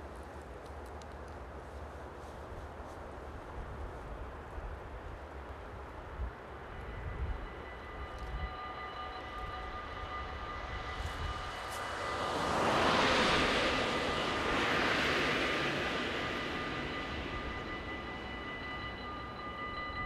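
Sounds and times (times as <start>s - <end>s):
level-crossing warning bell: 6.0s - 20.0s
cars driving past: 11.5s - 18.2s.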